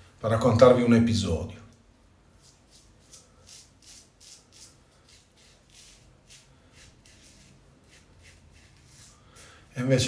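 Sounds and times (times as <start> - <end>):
razor rubbing strokes: 2.3 - 9.8.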